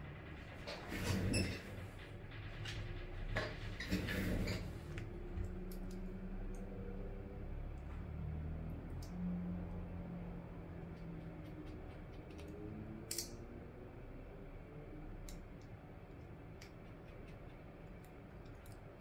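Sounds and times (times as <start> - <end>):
small screwdriver clicks and ticks: 11.0 - 13.4.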